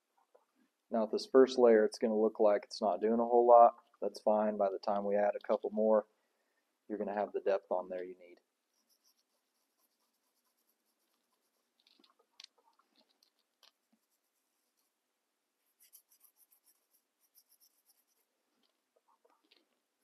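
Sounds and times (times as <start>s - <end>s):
bristle brush scratching: 8.7s - 15.0s, 15.6s - 19.6s.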